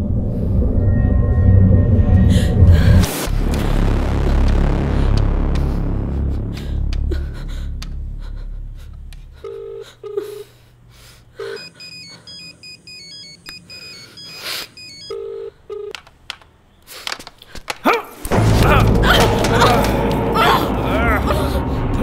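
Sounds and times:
short low beeps: 0:11.4 - 0:15.2
phone electronic ringtone: 0:11.4 - 0:15.9.

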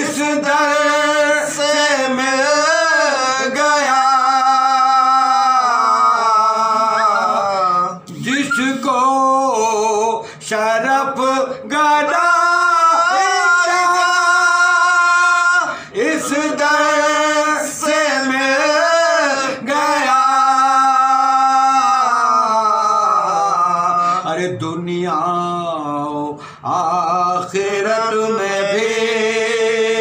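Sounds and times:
men chanting unaccompanied: 0:00.0 - 0:30.0.

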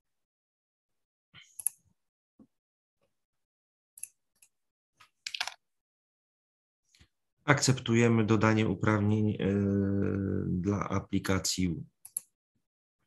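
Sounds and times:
computer mouse and keyboard clicks: 0:04.0 - 0:05.6, 0:12.0 - 0:12.4.

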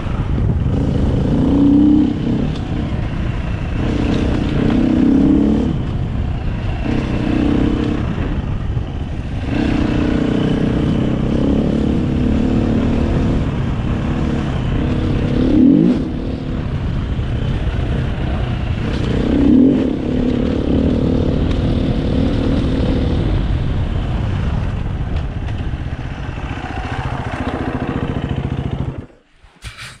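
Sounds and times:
dirt bike engine revving: 0:00.0 - 0:23.5.

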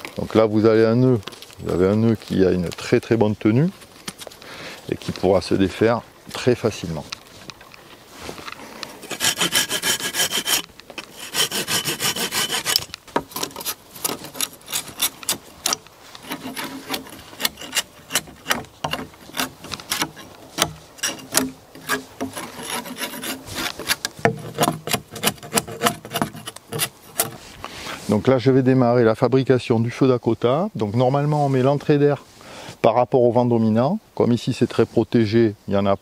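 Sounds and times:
blade knocking and scraping wood: 0:08.8 - 0:27.6
saw cutting branch: 0:08.8 - 0:27.7.

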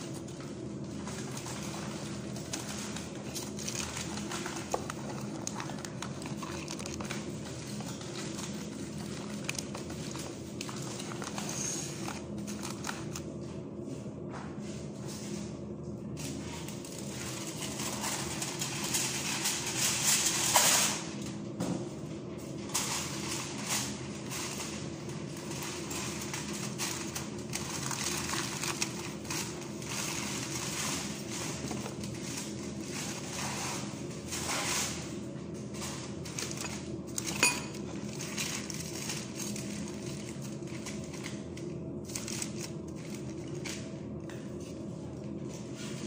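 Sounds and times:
steady low hum: 0:00.0 - 0:46.0
aluminium foil crinkling: 0:00.1 - 0:13.3, 0:22.8 - 0:33.8, 0:36.1 - 0:44.3.

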